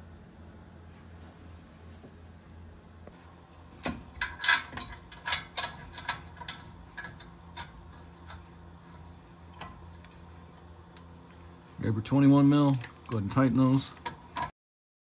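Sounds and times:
metal bolts clicking: 0:03.7 - 0:10.2, 0:12.4 - 0:14.5.

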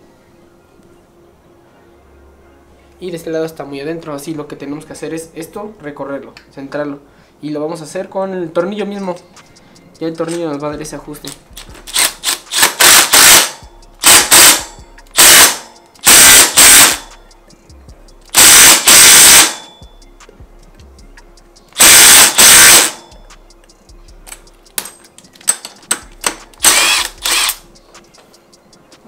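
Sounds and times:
impact driver hammering bolt: 0:11.9 - 0:17.0, 0:18.4 - 0:19.6, 0:21.8 - 0:23.0.

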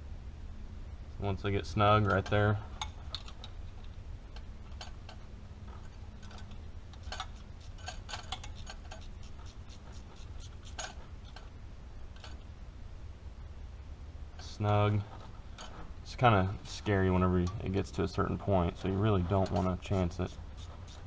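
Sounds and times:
hand ratchet clicking: 0:07.0 - 0:11.4, 0:19.5 - 0:21.0.

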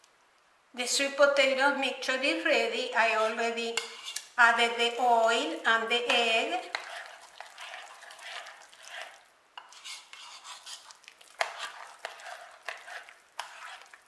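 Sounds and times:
fork scraping and squishing mixture: 0:03.7 - 0:04.4, 0:06.1 - 0:14.0.

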